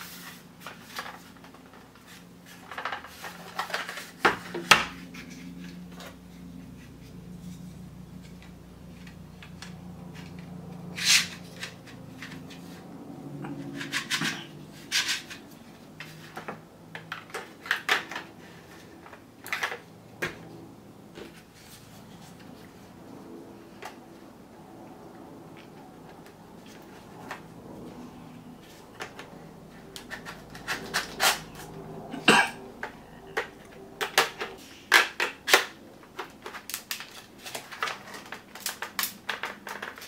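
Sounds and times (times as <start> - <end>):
plastic parts clicking and rattling: 2.5 - 6.2, 16.0 - 20.4, 28.7 - 31.7, 32.8 - 40.0.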